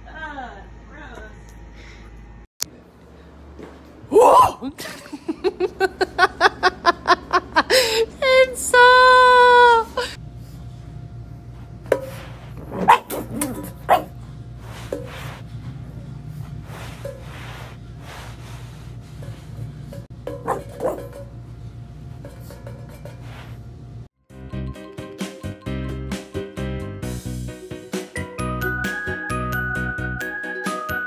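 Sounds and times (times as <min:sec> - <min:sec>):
puppy barking in high yips: 0:12.8 - 0:14.1.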